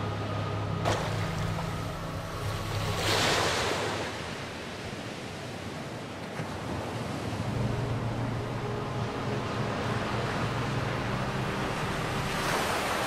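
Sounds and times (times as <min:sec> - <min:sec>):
low steady hum: 0:00.0 - 0:03.4, 0:07.4 - 0:13.0
waves washing in: 0:00.0 - 0:13.0.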